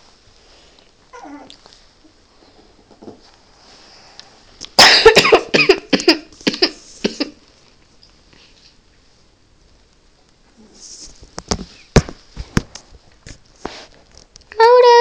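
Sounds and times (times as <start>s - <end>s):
puppy whining: 1.1s - 1.8s
loud coughing: 4.8s - 7.4s.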